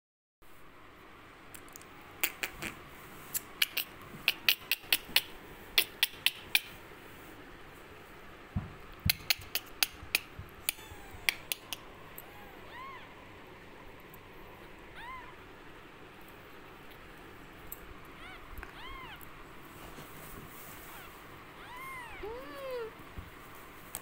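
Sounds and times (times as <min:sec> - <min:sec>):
kitten mewing: 0:09.1 - 0:13.2, 0:14.8 - 0:15.5, 0:18.1 - 0:19.4, 0:20.8 - 0:23.0.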